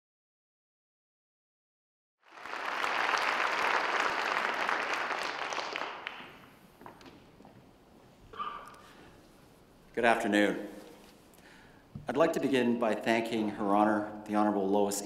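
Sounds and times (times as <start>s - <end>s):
audience applauding: 2.2s - 6.6s.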